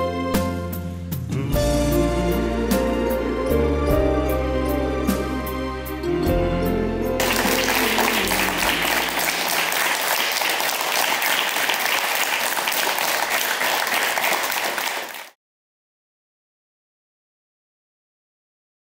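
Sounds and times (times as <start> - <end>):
music chord: 6.2 - 9.7
children clapping: 7.2 - 15.4.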